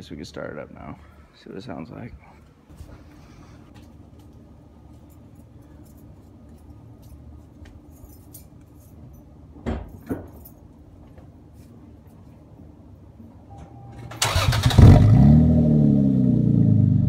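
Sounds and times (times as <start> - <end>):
car keys jangling: 7.9 - 9.3.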